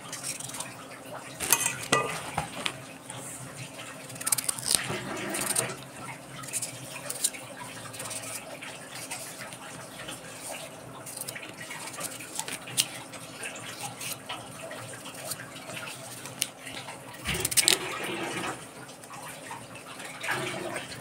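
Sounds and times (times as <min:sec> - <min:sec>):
knife scraping and cutting radish: 0:00.0 - 0:00.7, 0:01.4 - 0:02.8, 0:04.0 - 0:09.6, 0:10.3 - 0:13.0, 0:13.7 - 0:14.3, 0:17.3 - 0:18.0.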